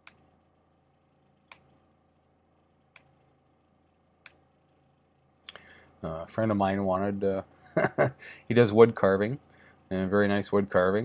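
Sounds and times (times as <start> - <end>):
computer mouse clicks: 0.0 - 1.8, 2.6 - 5.6.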